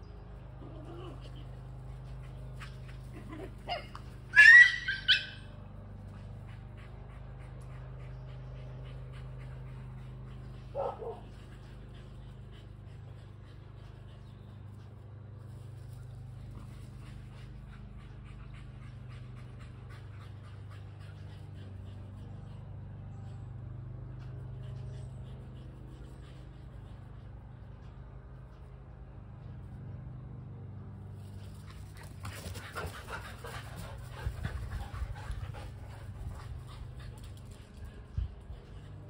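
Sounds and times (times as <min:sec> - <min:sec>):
steady low hum: 0:00.0 - 0:04.4, 0:05.4 - 0:39.0
dog yelping: 0:03.7 - 0:05.5.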